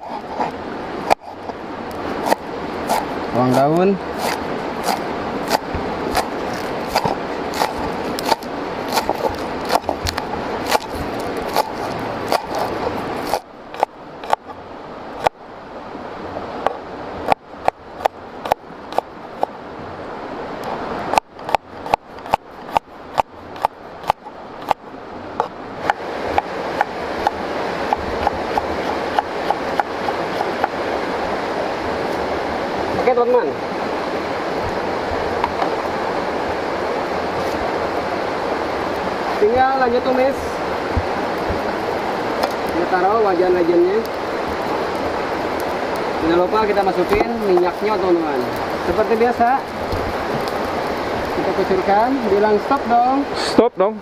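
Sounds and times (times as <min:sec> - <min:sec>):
knife chopping on wooden board: 0:02.2 - 0:03.1, 0:04.2 - 0:14.4, 0:21.1 - 0:24.8, 0:25.4 - 0:30.8.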